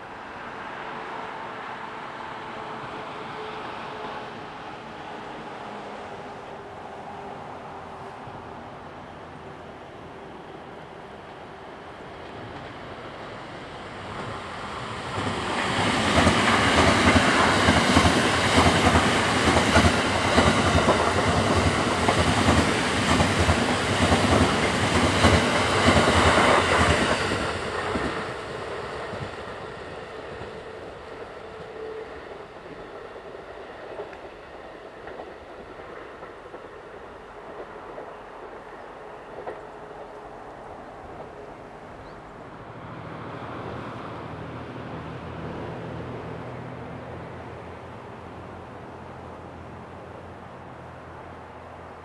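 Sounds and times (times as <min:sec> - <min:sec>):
train wheels rumbling and clattering: 0:14.0 - 0:42.1.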